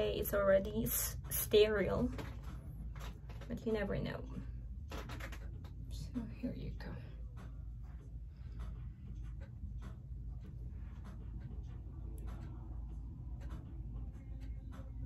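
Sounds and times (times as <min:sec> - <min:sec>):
steady low hum: 0:00.0 - 0:15.0
fingers rubbing and clicking plastic: 0:04.9 - 0:05.8.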